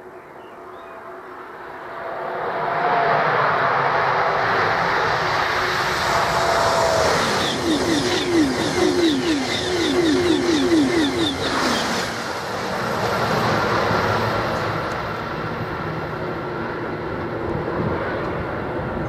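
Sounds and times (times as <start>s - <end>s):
train rushing past: 1.0s - 16.1s
train wheels beating rhythmically: 6.8s - 12.2s.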